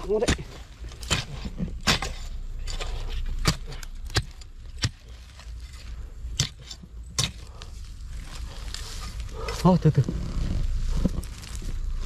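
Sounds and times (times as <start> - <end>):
spade striking stony earth: 0.0 - 7.6.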